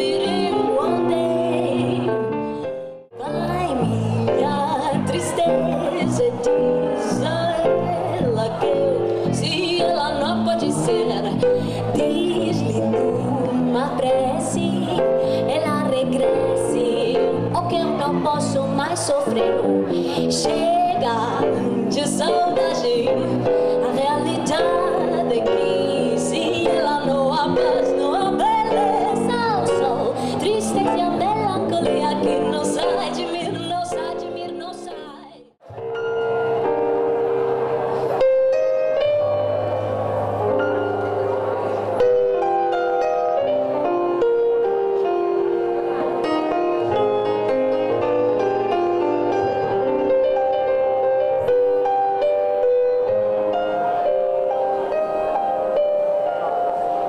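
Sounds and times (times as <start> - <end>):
woman singing: 0.0 - 2.4, 3.2 - 35.5
piano: 0.0 - 57.0.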